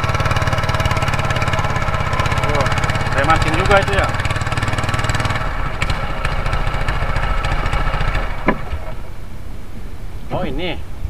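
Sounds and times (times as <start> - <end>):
boat engine running: 0.0 - 9.3
light knocks: 8.4 - 8.9.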